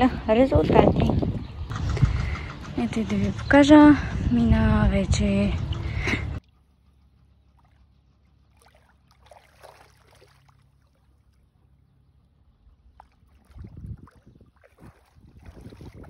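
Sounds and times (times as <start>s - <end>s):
wind buffeting microphone: 0.0s - 6.4s, 12.7s - 16.0s
low steady wind rumble: 0.0s - 16.0s
soft water lapping: 5.6s - 16.0s.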